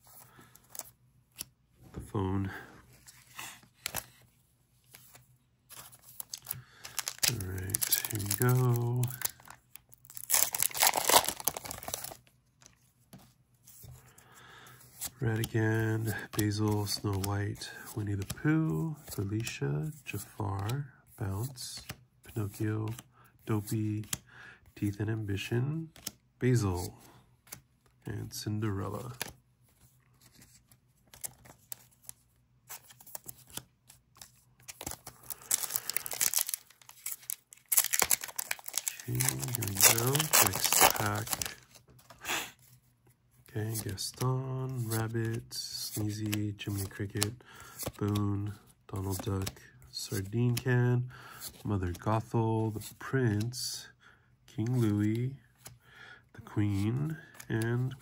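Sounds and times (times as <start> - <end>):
foil wrapper tearing: 10.0 - 12.0, 35.3 - 41.6.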